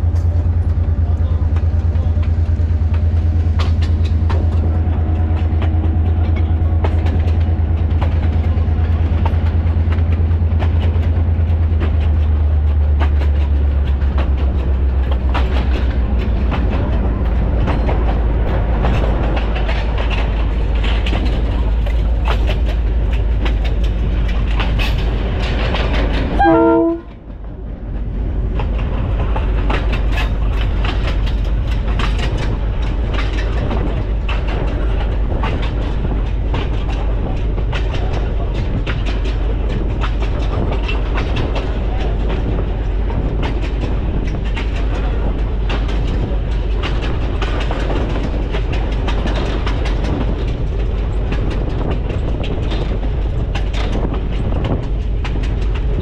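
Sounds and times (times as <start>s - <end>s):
diesel locomotive engine drone: 0.0s - 56.0s
wheels clattering over rail joints: 0.0s - 56.0s
train horn blast: 26.4s - 27.2s.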